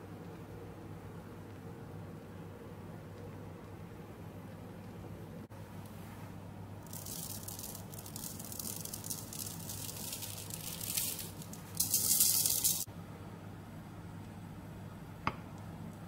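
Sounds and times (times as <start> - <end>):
sugar sifter rattling: 6.8 - 12.9.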